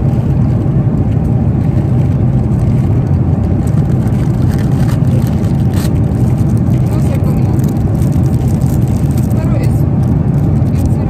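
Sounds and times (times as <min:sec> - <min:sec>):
airliner engine rumble: 0:00.0 - 0:11.0
plastic crinkling: 0:03.5 - 0:11.0.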